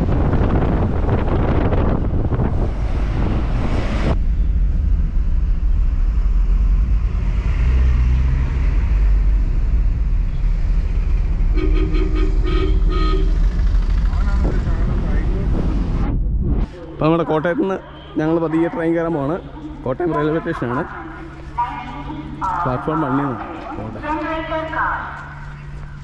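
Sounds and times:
wind rushing through car window: 0:00.0 - 0:05.3, 0:13.5 - 0:16.7
car engine and road rumble: 0:00.0 - 0:26.0
vehicle horn short beeps: 0:11.6 - 0:13.4.

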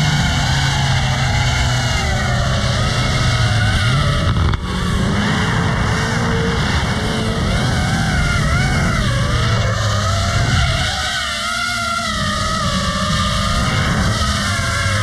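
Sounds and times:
car engine revving: 0:00.0 - 0:15.0.

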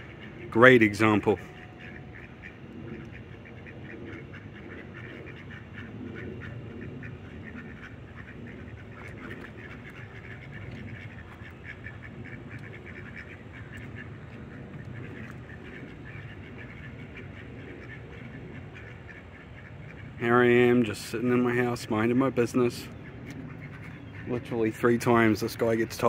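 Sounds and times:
ducks quacking: 0:00.0 - 0:26.0.

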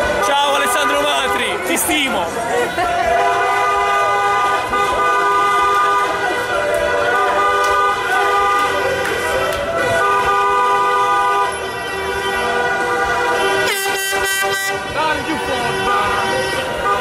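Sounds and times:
car horns honking: 0:00.0 - 0:17.0.

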